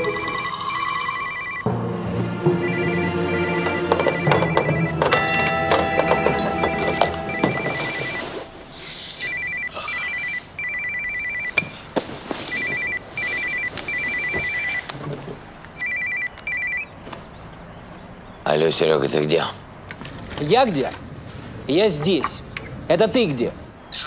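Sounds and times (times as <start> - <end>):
phone ringtone trilling beeps: 0.0 - 1.7, 2.4 - 11.7, 12.5 - 14.8, 15.8 - 16.9.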